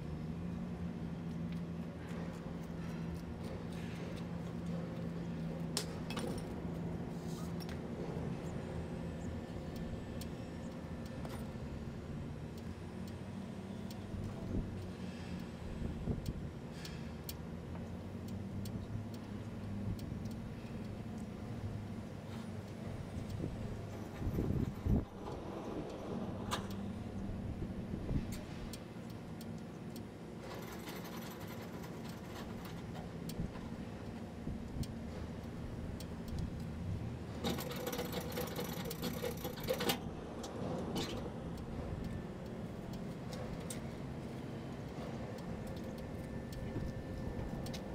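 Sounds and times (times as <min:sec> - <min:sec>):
sharp ticks and clicks: 0:12.4 - 0:21.8, 0:28.2 - 0:47.9
metallic clicks and clinks: 0:37.4 - 0:40.0.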